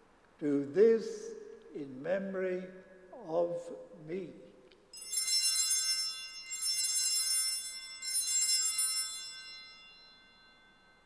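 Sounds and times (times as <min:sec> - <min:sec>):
altar bell ringing: 0:05.0 - 0:11.0.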